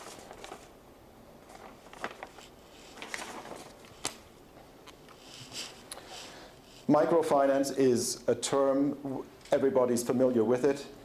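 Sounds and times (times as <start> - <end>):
paper sheets rustling: 0.0 - 0.8, 1.4 - 6.8.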